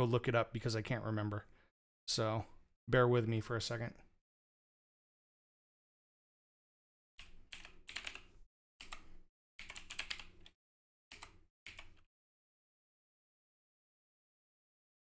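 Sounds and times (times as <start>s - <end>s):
typing on mechanical keyboard: 7.2s - 10.5s, 11.1s - 12.1s.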